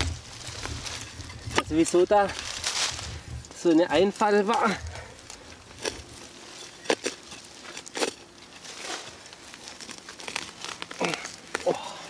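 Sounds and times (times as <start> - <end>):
spade digging into soil: 5.8 - 9.1.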